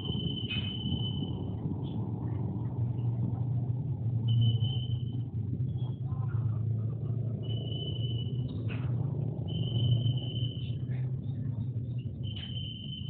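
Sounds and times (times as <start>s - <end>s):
thin high whistle-like tone: 0.0s - 2.1s, 4.1s - 6.5s, 7.2s - 13.0s
low engine rumble: 0.0s - 13.0s.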